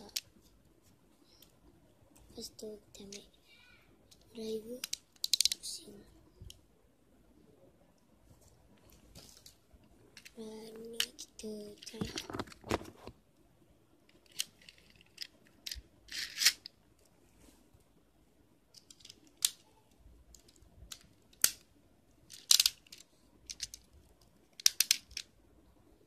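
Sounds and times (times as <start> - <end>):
plastic toy parts clicking: 4.1 - 5.8, 11.0 - 12.7, 14.1 - 16.7, 18.7 - 19.7, 20.3 - 21.6, 22.3 - 25.3.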